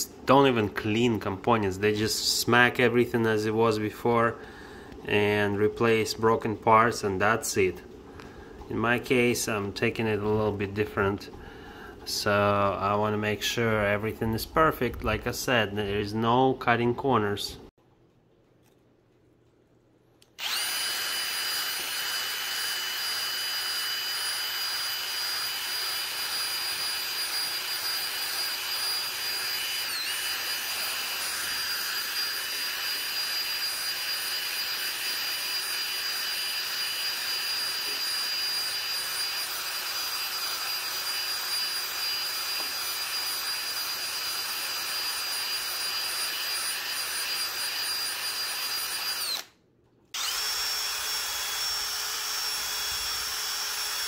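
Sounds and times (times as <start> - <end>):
drill motor whine: 20.4 - 49.5, 50.2 - 54.0.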